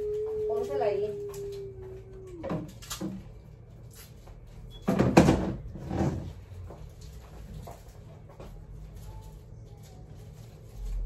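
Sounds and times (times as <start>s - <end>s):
plastic chairs clattering: 4.8s - 8.0s.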